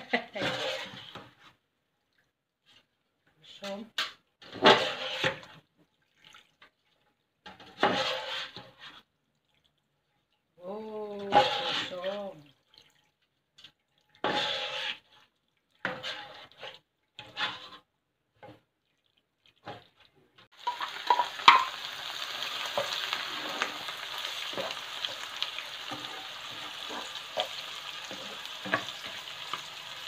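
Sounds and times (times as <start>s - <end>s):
spatula scraping a bowl: 0.4s - 1.4s, 4.5s - 5.5s, 7.5s - 9.0s, 11.2s - 12.2s, 14.2s - 18.6s, 22.8s - 29.8s
oil sizzling in a wok: 7.5s - 8.9s, 11.3s - 12.1s, 14.2s - 15.1s, 20.4s - 30.0s.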